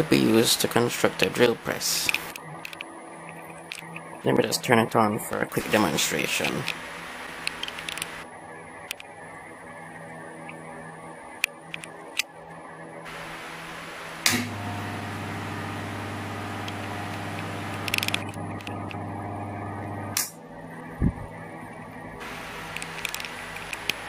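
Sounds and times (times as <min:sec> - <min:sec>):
fan motor humming: 0:13.1 - 0:24.0
motor switch click: 0:14.2 - 0:15.1.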